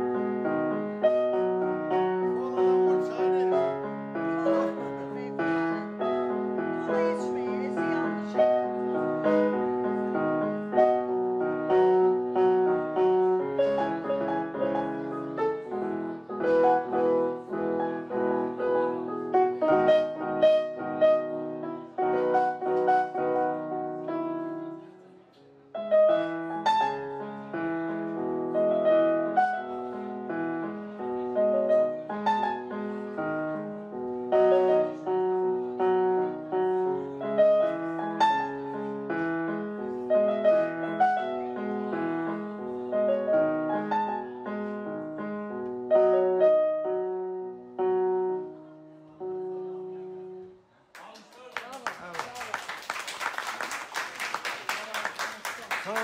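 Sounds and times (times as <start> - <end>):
keyboard playing tune and chords: 0.0 - 24.8.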